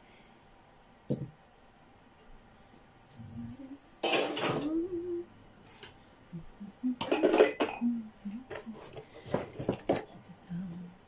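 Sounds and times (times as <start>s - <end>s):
dishes and cutlery clattering: 4.0s - 4.7s, 7.0s - 7.9s.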